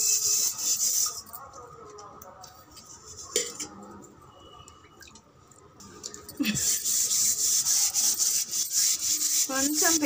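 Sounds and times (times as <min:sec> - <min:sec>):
gritty scrubbing of a pot: 0:00.0 - 0:01.4, 0:06.5 - 0:10.0.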